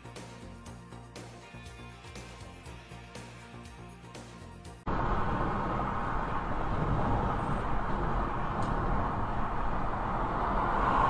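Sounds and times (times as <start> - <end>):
car road noise: 4.9 - 11.0.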